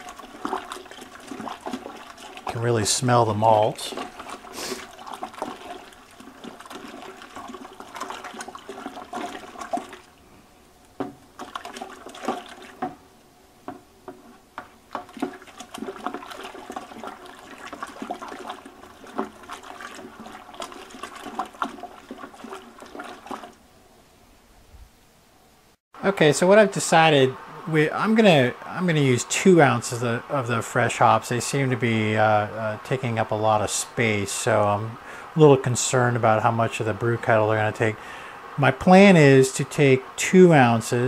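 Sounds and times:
liquid sloshing: 0.0s - 23.7s.

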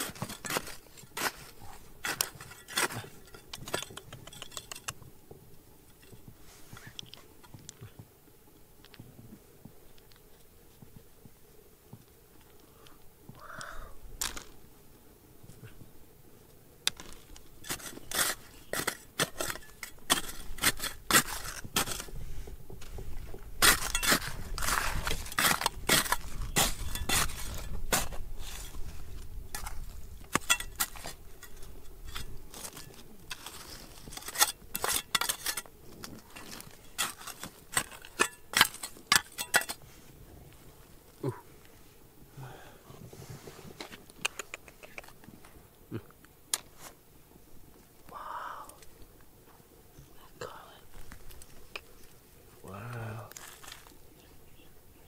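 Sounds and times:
stones and metal clinking: 2.0s - 5.0s, 16.9s - 22.1s, 23.6s - 28.8s, 29.5s - 39.8s.

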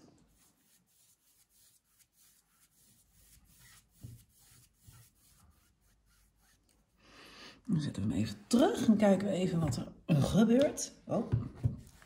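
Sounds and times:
brush swishing on canvas: 0.0s - 6.9s.

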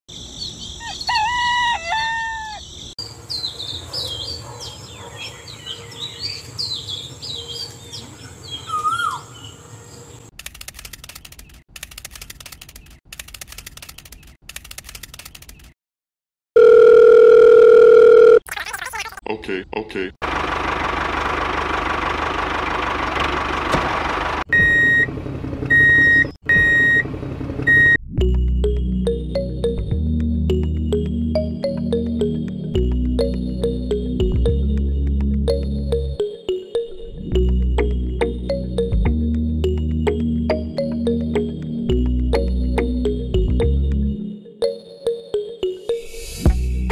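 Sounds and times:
rooster crowing: 0.8s - 2.7s
small birds chirping: 2.4s - 15.8s
low engine idle: 20.2s - 24.4s
reversing alarm beeps: 24.5s - 25.1s, 25.7s - 27.0s, 27.7s - 28.0s.

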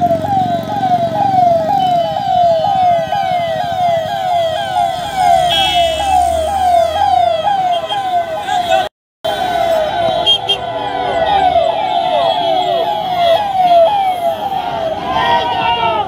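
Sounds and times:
sirens wailing: 0.0s - 16.0s
vehicle horn: 5.5s - 6.1s.

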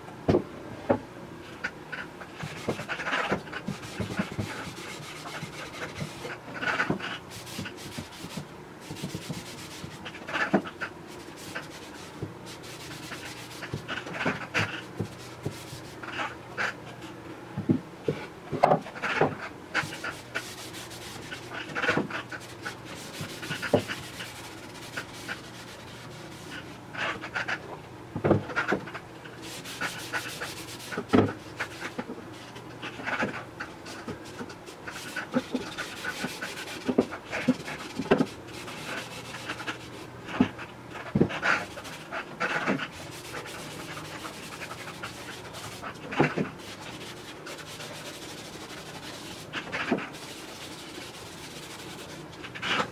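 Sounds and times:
rag swishing on wood: 19.0s - 27.6s, 29.4s - 32.0s, 41.2s - 52.9s.

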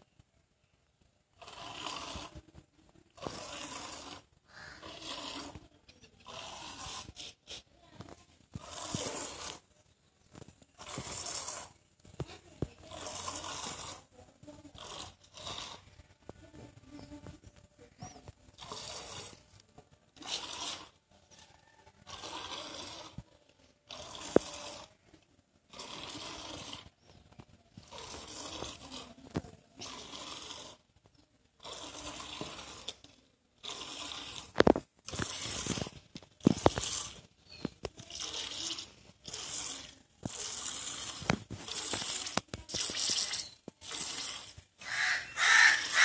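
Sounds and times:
milk squirting into steel bowl: 20.2s - 21.0s, 23.9s - 24.9s, 27.8s - 30.8s, 31.6s - 46.0s.

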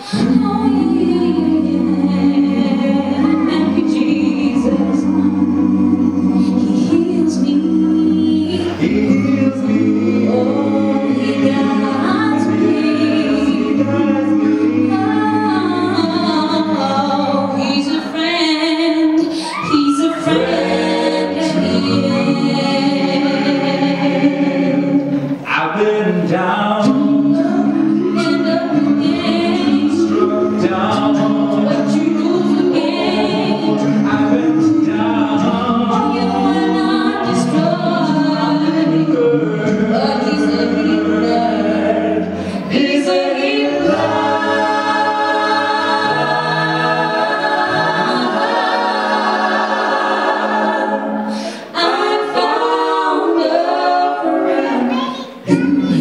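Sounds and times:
vocal group harmonies: 0.0s - 56.0s
female lead voice singing: 14.9s - 22.8s.

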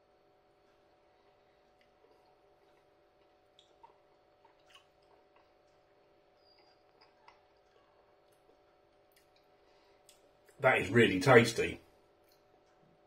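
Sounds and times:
faint steady hum: 0.0s - 13.0s
man chewing: 0.4s - 10.6s.

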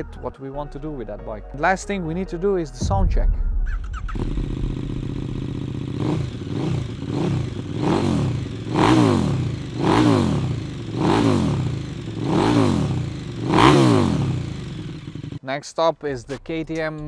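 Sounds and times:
motorcycle engine revving: 3.8s - 15.4s.

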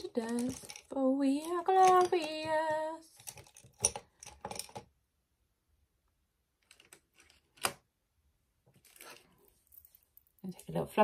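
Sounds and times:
makeup items clicking on table: 0.3s - 2.6s.

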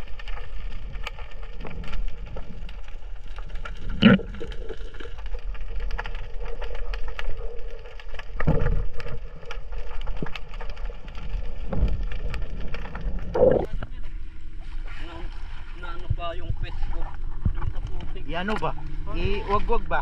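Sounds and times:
underwater crackle of clicks: 0.0s - 13.9s.

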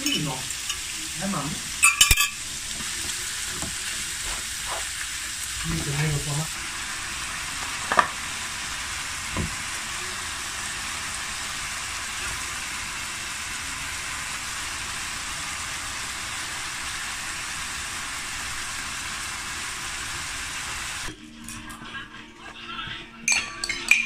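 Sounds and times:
food sizzling in a wok: 0.0s - 21.5s.

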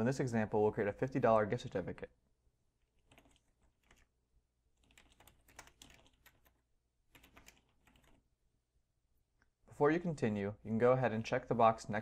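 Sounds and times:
faint typing on keyboard: 2.8s - 8.3s.

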